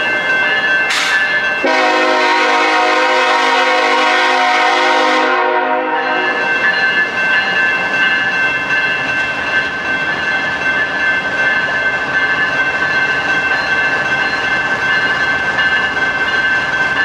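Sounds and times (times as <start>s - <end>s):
freight train rumbling by: 0.0s - 17.0s
high steady tone: 5.9s - 17.0s.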